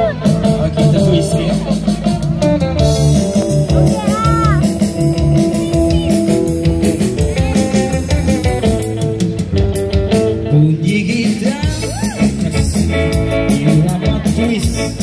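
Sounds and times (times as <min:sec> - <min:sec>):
band playing through speaker: 0:00.0 - 0:15.0.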